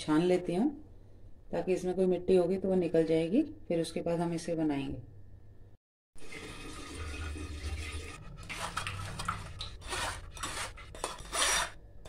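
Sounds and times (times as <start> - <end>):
spoon scraping wire-mesh strainer: 7.7 - 11.8.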